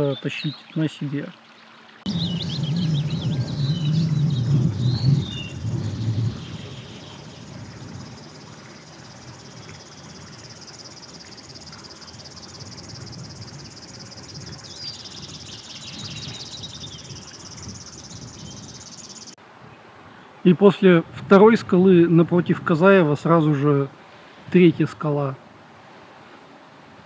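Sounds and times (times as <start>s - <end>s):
bird chirps: 2.1s - 19.4s
insects trilling: 2.1s - 19.4s.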